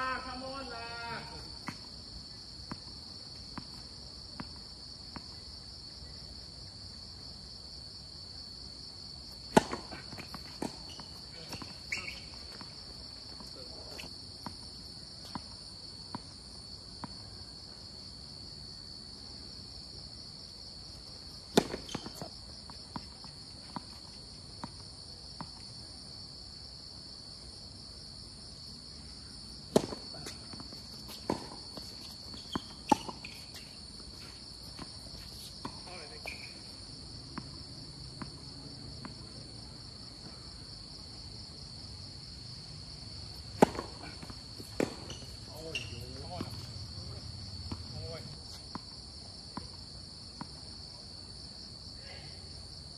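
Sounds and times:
insects chirring: 0.0 - 52.9
tennis ball bounces: 9.4 - 12.7, 21.5 - 23.8, 29.7 - 33.7, 43.5 - 46.7.

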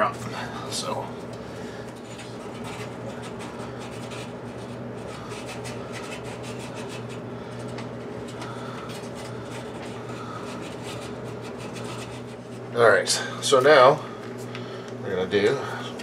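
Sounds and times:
sandpaper rubbing on metal rod: 10.5 - 12.4.

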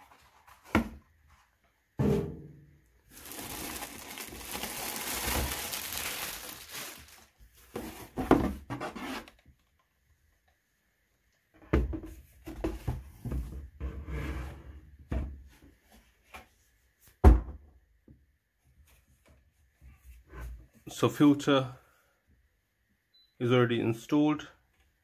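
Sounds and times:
plastic wrapping rustling: 3.0 - 8.2.

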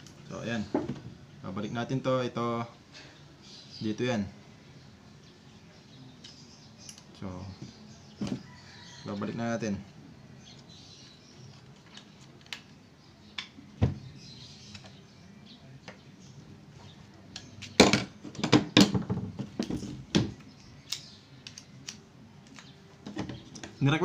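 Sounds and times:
screwdriver and metal parts clicking: 20.6 - 22.0.

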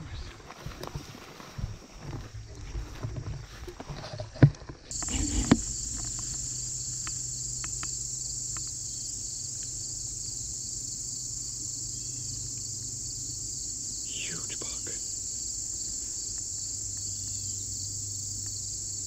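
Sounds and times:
insect chorus: 4.9 - 19.0.

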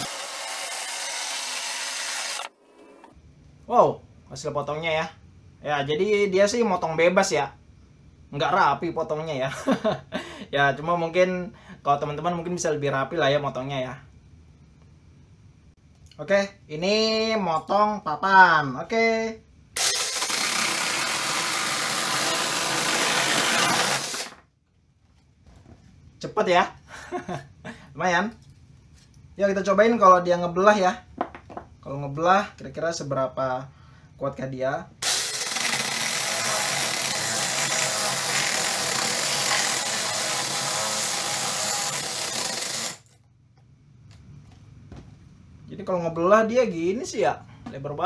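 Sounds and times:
chainsaw cutting wood: 0.0 - 3.0, 19.8 - 24.4, 35.0 - 43.2.

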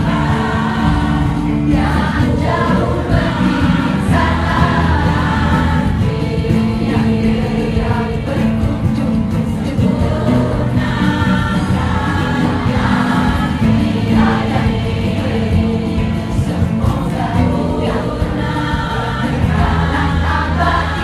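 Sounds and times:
choir singing in harmony: 0.0 - 21.0.

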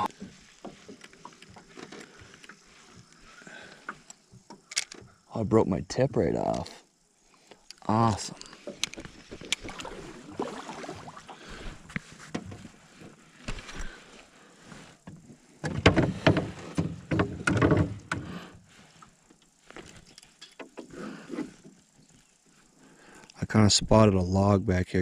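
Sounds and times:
fishing gear knocking and rattling: 0.0 - 3.2, 7.7 - 10.2, 15.6 - 18.3.

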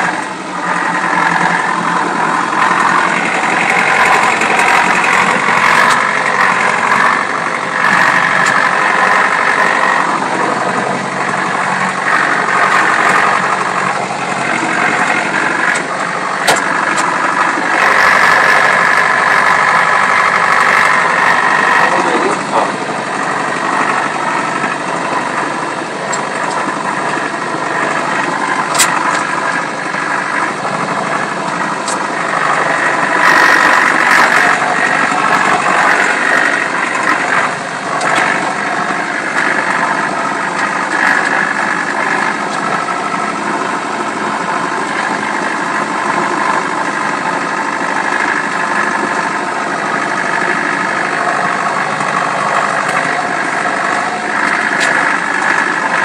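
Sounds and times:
tractor engine running: 0.0 - 56.0.

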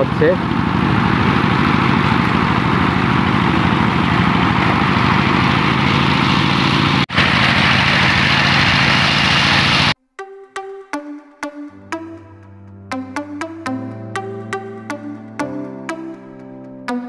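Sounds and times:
threshing machine running: 0.0 - 10.0.

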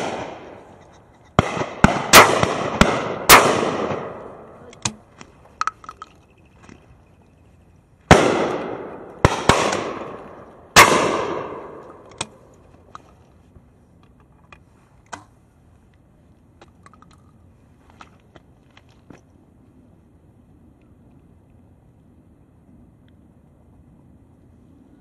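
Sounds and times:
gunshots echoing: 0.0 - 0.8, 1.4 - 5.0, 8.1 - 12.5.

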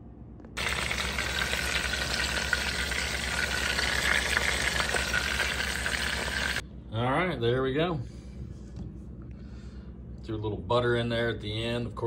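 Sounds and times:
meat sizzling in a pan: 0.6 - 6.6.

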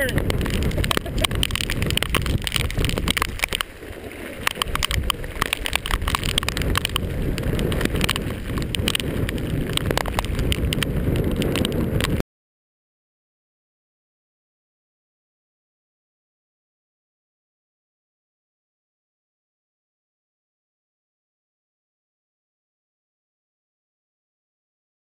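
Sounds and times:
raindrops tapping camera: 0.0 - 12.2
wind buffeting microphone: 0.0 - 12.2.

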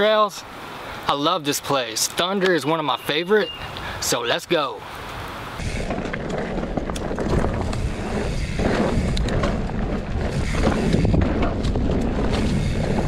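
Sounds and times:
bike tyres on dirt: 5.0 - 13.0
wind rumble on microphone: 5.2 - 13.0
bike rattles and clicks: 5.6 - 13.0.

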